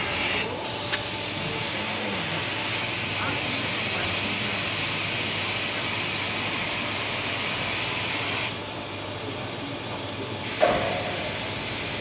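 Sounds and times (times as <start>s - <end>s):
machinery hiss: 0.0s - 8.5s, 10.4s - 12.0s.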